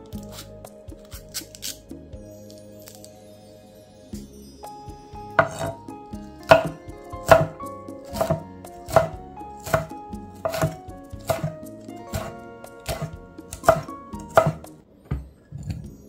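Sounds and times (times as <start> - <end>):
knife chopping on cutting board: 5.4 - 15.2.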